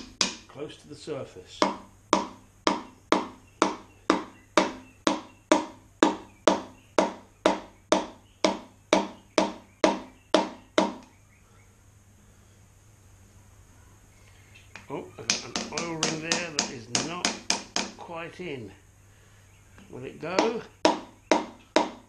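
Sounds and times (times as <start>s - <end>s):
hammer handle tapping piston: 15.2s - 18.0s.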